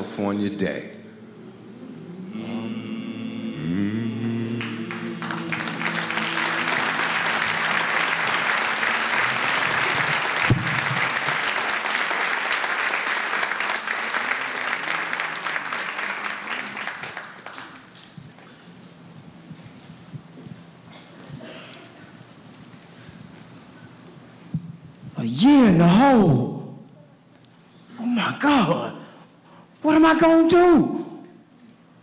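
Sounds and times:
audience applause: 0:04.2 - 0:18.5.

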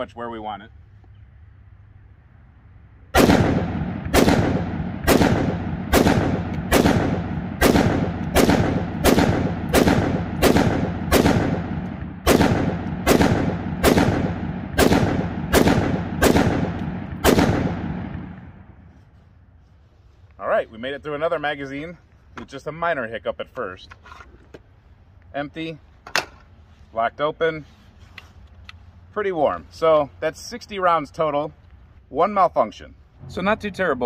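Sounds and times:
rifle shots with echo: 0:03.1 - 0:18.7.

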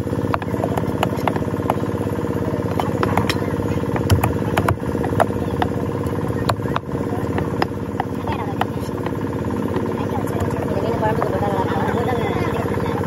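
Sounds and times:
engine idling: 0:00.0 - 0:13.0
knife chopping on wooden block: 0:00.3 - 0:01.9, 0:02.7 - 0:05.8, 0:06.4 - 0:09.2.

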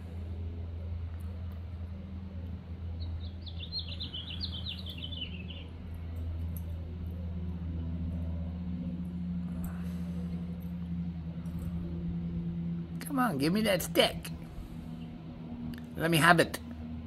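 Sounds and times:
steady low hum: 0:00.0 - 0:17.0
songbird trilling: 0:03.0 - 0:05.7.

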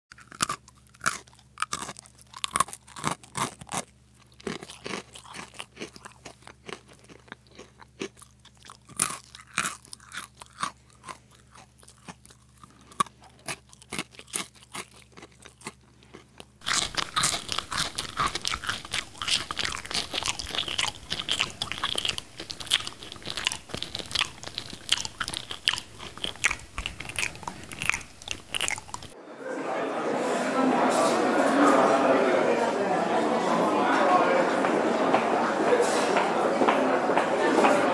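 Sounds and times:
cookies crunching: 0:00.1 - 0:29.2
faint low hum: 0:00.1 - 0:35.1.

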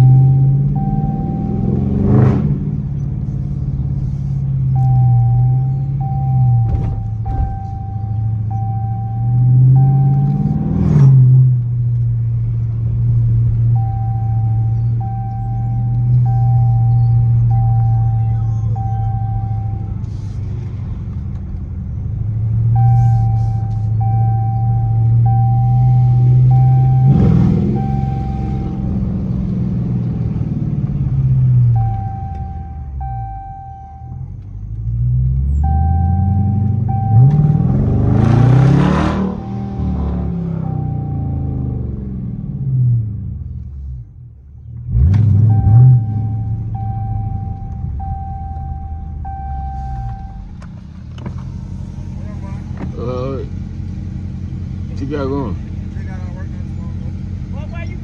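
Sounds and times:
high beeping tone: 0:00.0 - 0:01.9, 0:04.8 - 0:10.7, 0:13.8 - 0:20.0, 0:22.8 - 0:29.0, 0:31.7 - 0:34.2, 0:35.6 - 0:42.1, 0:45.4 - 0:50.6
car engine droning: 0:00.0 - 0:58.0
steady high tone: 0:35.7 - 0:42.0.

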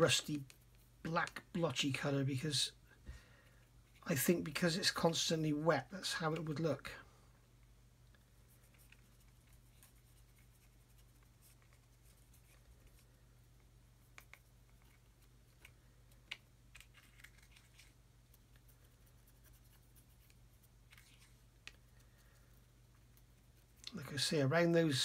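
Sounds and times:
low steady hum: 0:00.0 - 0:25.0
paintbrush scratching on plastic: 0:08.4 - 0:13.2, 0:13.9 - 0:15.8, 0:16.8 - 0:22.2.

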